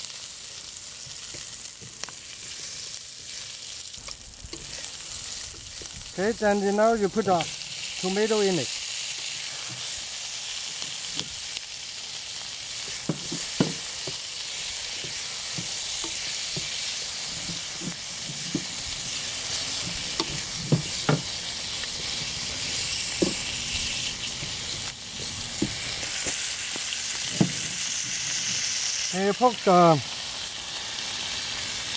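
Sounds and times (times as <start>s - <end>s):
vegetables sizzling in oil: 0.0s - 31.9s
spatula knocking and scraping pan: 12.8s - 14.3s, 15.0s - 19.1s, 19.7s - 21.4s, 23.1s - 23.5s, 24.3s - 26.4s.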